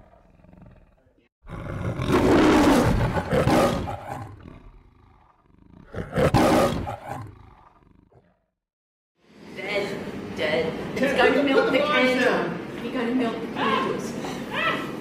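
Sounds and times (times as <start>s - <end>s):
lion roaring: 0.0s - 8.5s.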